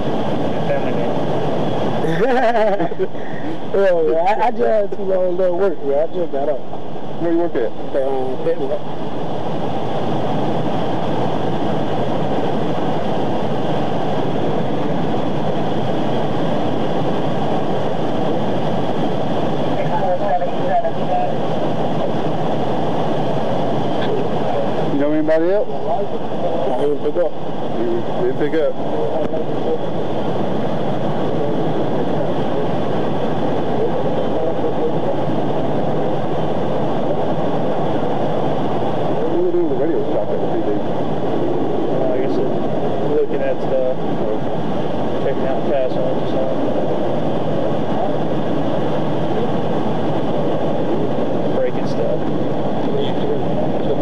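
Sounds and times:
steady rushing rumble: 0:00.0 - 0:54.0.

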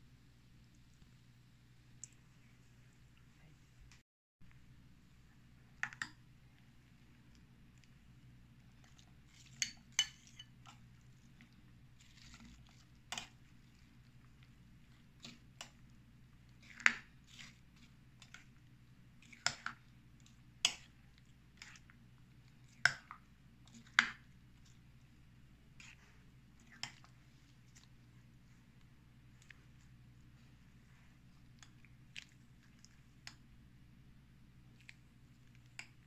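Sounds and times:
faint steady low hum: 0:00.0 - 0:36.0.

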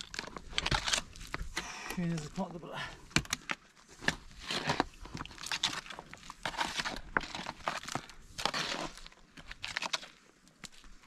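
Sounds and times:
shovel scraping soil and stones: 0:03.9 - 0:10.2.

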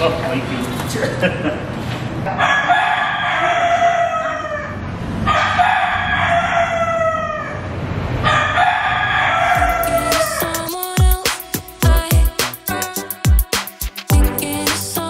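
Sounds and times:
rooster crowing: 0:02.3 - 0:10.8.

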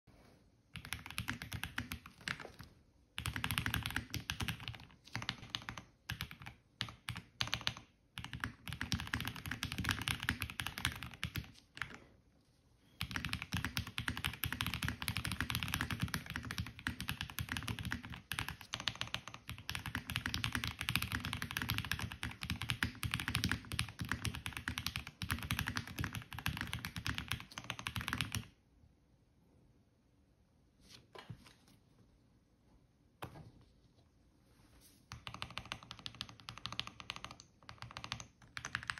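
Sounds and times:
mechanical keyboard typing: 0:00.7 - 0:12.0, 0:13.0 - 0:28.6, 0:35.1 - 0:38.9.

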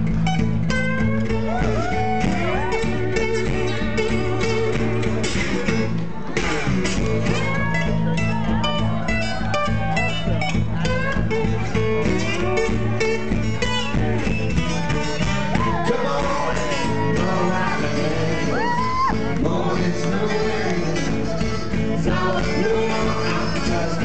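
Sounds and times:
acoustic band playing: 0:00.0 - 0:24.0
picked acoustic guitar: 0:00.0 - 0:24.0.

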